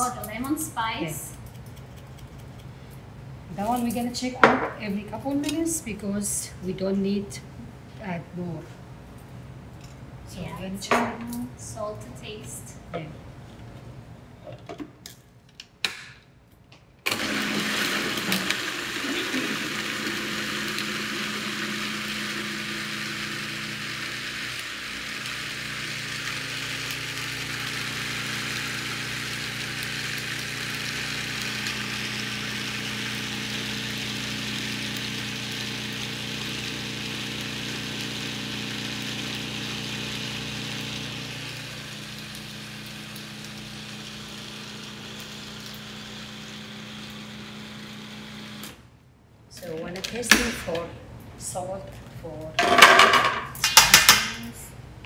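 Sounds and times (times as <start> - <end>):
food processor whirring: 17.1 - 48.8.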